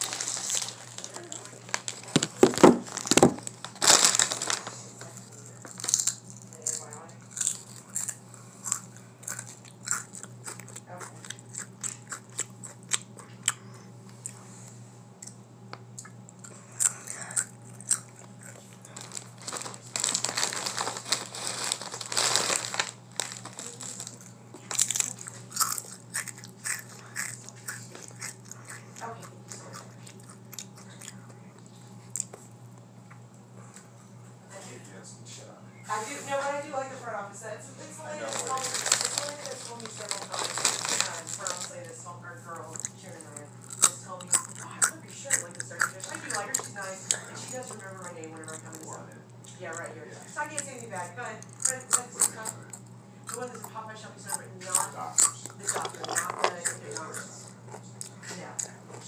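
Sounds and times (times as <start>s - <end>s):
chip bag crinkling: 0.0s - 13.0s, 16.8s - 28.8s, 38.0s - 42.0s, 42.7s - 49.0s, 54.7s - 57.0s
chips crunched and chewed: 0.0s - 14.4s, 16.0s - 31.4s, 38.2s - 41.9s, 42.7s - 49.9s, 50.6s - 53.7s, 54.4s - 59.0s
steady low hum: 0.0s - 59.0s.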